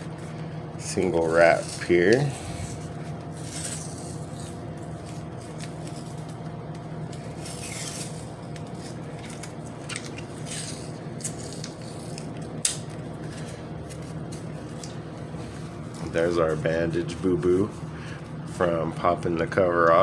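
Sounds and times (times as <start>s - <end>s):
adhesive tape peeling: 7.0s - 15.0s.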